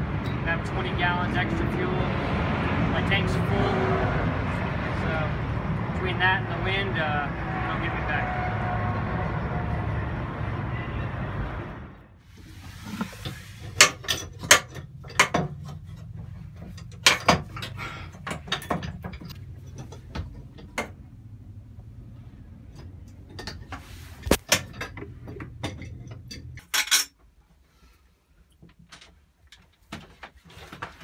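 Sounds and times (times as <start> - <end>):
tools clattering and knocking: 13.0 - 21.2, 22.6 - 27.3.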